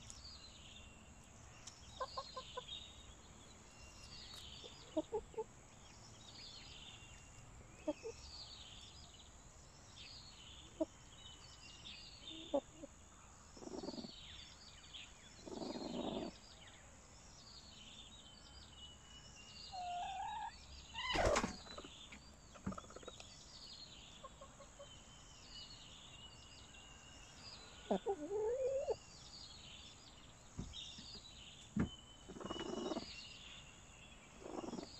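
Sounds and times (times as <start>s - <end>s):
hens clucking softly: 1.9s - 2.7s, 4.6s - 5.5s, 13.6s - 14.1s, 15.4s - 16.4s, 19.8s - 23.3s, 24.2s - 25.0s, 27.8s - 29.0s, 32.3s - 33.1s, 34.4s - 34.9s.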